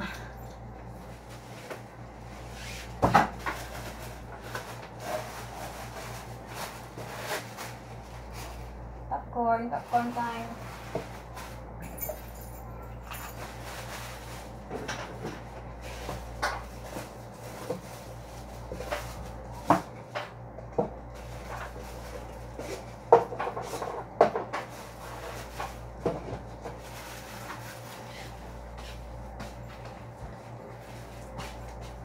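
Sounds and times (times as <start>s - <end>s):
steady low hum: 0.0s - 32.0s
plastic packaging rustling: 3.3s - 8.7s.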